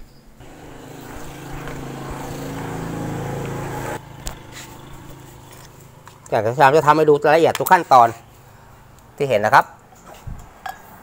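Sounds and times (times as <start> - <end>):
engine running with steady hum: 0.4 - 6.5.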